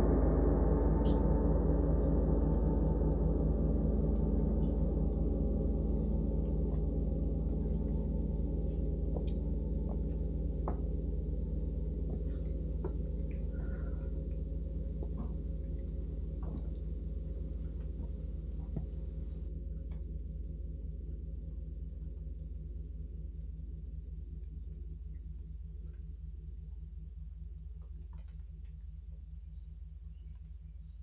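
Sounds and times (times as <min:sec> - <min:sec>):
large gong ringing: 0:00.0 - 0:21.5
bird trilling: 0:02.5 - 0:04.7, 0:11.0 - 0:14.6.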